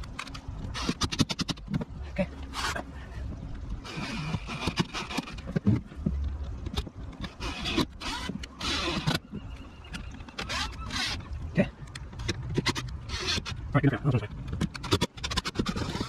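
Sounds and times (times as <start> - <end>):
power drill driving screws: 7.4 - 9.2, 10.4 - 11.2.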